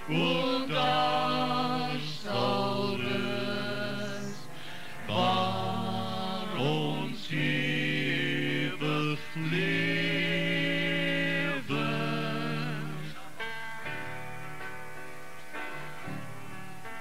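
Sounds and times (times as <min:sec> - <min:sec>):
slow hymn music: 0:00.0 - 0:17.0.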